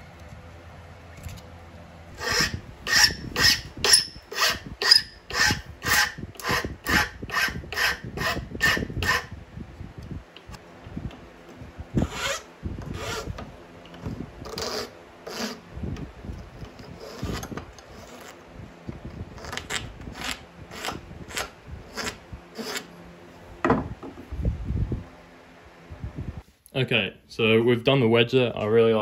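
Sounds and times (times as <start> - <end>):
file scraping wood: 2.2 - 9.3, 12.0 - 13.4, 14.0 - 15.7, 16.4 - 18.4, 19.3 - 23.0.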